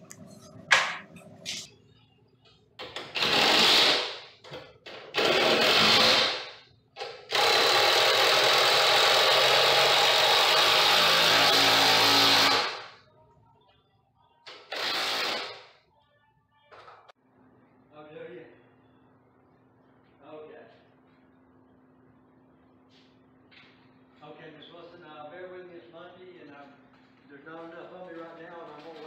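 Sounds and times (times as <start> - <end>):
cordless drill driving screws: 3.1 - 4.1, 7.3 - 12.8, 14.5 - 15.6.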